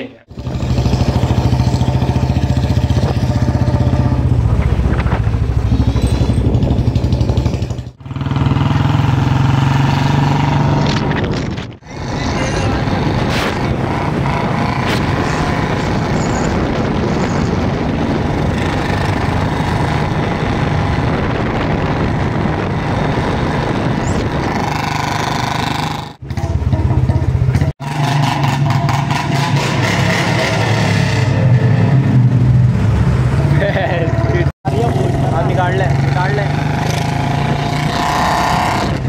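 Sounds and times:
motorcycle engine running: 0.3 - 11.4
wind rush: 2.6 - 7.5, 9.7 - 25.8.

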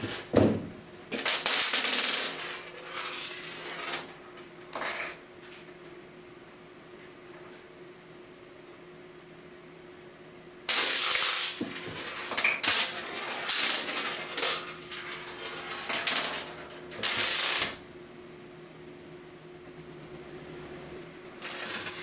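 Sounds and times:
toy rattling across plastic floor: 1.1 - 4.1, 10.7 - 17.8, 21.4 - 22.0.

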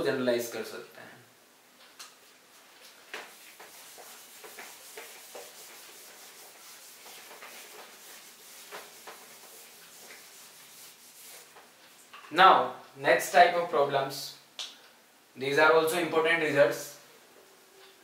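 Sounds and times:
rubbing strokes on a whiteboard: 3.1 - 11.8.

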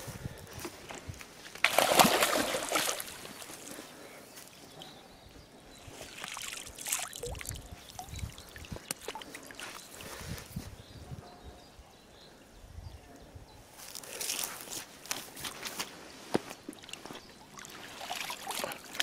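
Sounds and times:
water sloshing: 1.5 - 3.8, 6.0 - 10.2, 16.6 - 19.0
water splashing: 1.6 - 3.8, 6.1 - 10.1, 16.7 - 19.0.

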